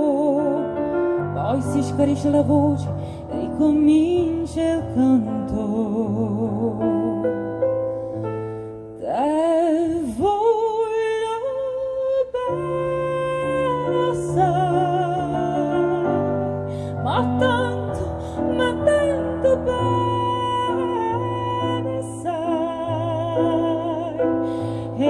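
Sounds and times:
woman singing operatically: 0:00.0 - 0:07.2, 0:09.0 - 0:25.0
digital piano: 0:00.0 - 0:25.0.

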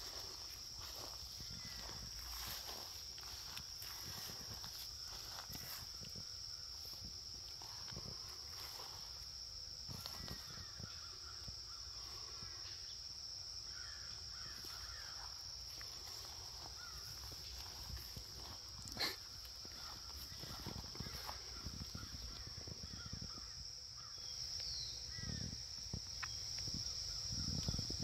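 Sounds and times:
insects droning: 0:00.0 - 0:28.0
faint bird calls: 0:13.6 - 0:15.4, 0:16.0 - 0:25.6.

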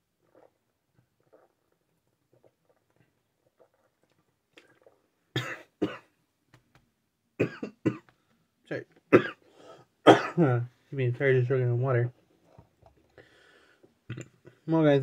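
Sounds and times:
man coughing: 0:05.4 - 0:06.1, 0:07.4 - 0:08.0, 0:09.1 - 0:09.4, 0:10.0 - 0:10.6.

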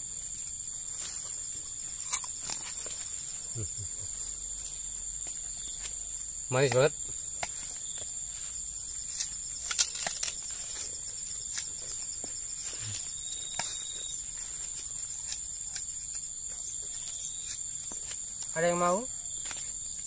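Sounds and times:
sugarcane being chewed: 0:00.0 - 0:18.6, 0:19.3 - 0:20.0
high-pitched insect trill: 0:00.0 - 0:20.0.

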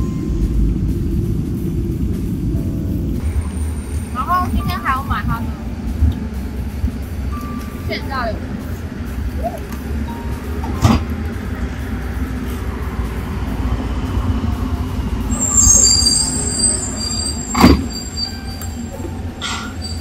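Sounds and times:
street traffic rumble: 0:00.0 - 0:20.0
vehicle brakes squealing: 0:15.0 - 0:20.0.

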